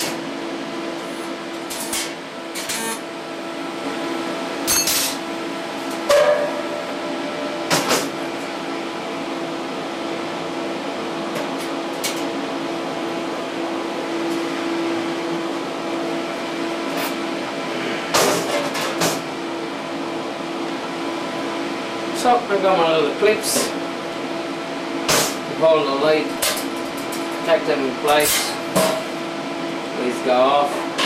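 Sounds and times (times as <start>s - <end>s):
workshop machinery hum: 0.0s - 31.0s.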